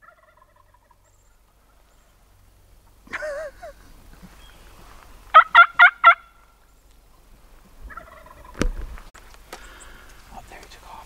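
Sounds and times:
turkey gobbling: 0.0 - 1.9, 5.3 - 6.6, 7.9 - 8.7.

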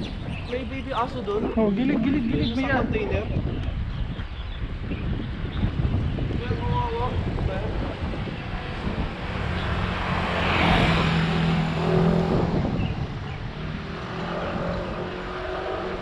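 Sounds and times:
wind rumble on microphone: 0.0 - 16.0
car passing by: 8.1 - 16.0.

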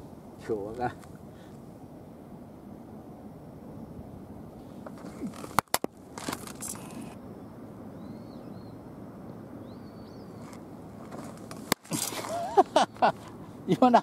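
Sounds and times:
open-air background noise: 0.0 - 14.0
small bird chirping: 6.6 - 8.8, 9.6 - 10.7
scuffing rustle: 10.4 - 12.6.

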